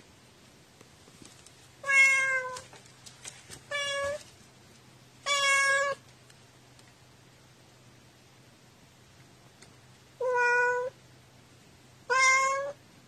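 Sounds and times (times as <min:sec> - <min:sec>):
cat meowing: 0:01.8 - 0:02.6, 0:03.7 - 0:04.2, 0:05.2 - 0:06.0, 0:10.2 - 0:11.0, 0:12.1 - 0:12.8.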